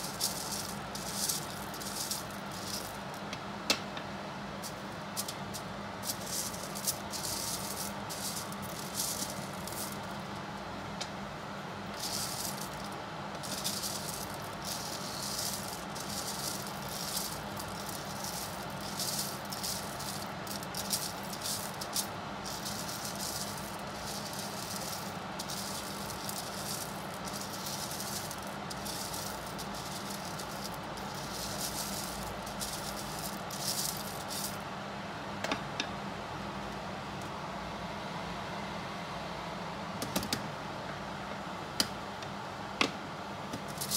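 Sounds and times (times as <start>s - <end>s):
coffee beans rattling in metal bowl: 0.0s - 3.2s, 4.6s - 10.3s, 11.9s - 34.6s, 43.6s - 43.9s
fan hum: 0.0s - 43.9s.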